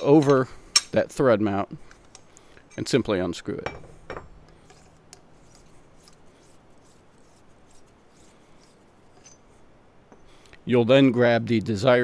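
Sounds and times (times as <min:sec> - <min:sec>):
light metallic clicks and scraping: 0:01.8 - 0:06.2, 0:08.6 - 0:10.6.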